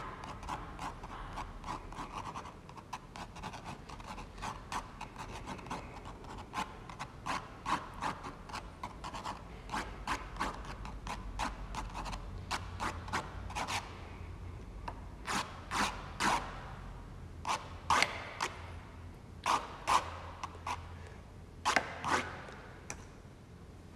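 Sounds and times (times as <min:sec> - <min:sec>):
pen nib scratching on paper: 0:00.0 - 0:13.9.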